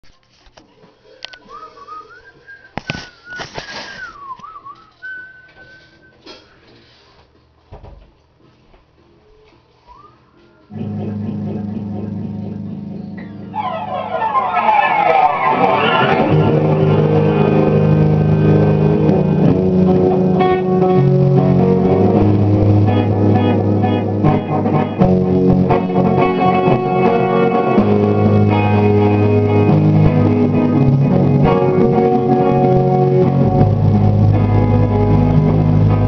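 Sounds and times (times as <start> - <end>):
rock band electric guitars: 10.7 - 36.0.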